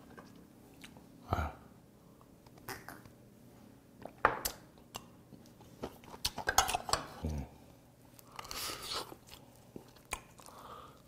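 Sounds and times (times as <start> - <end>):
person eating: 8.2 - 11.0.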